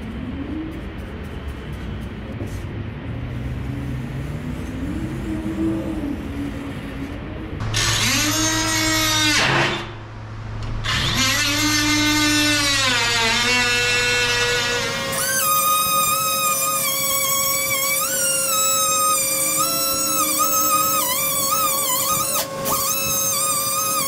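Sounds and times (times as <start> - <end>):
cordless power tool motor whining: 10.8 - 24.0.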